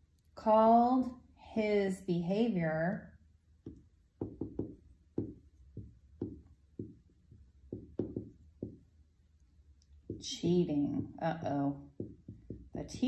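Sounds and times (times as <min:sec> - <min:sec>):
writing tool tapping on board: 0:03.6 - 0:08.9, 0:10.0 - 0:10.3, 0:12.0 - 0:12.8.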